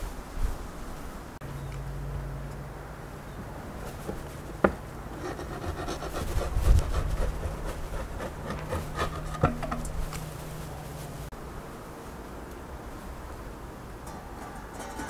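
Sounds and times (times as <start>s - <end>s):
wooden peel scraping on brick: 3.9s - 11.2s
wood knocking on brick: 7.6s - 10.2s.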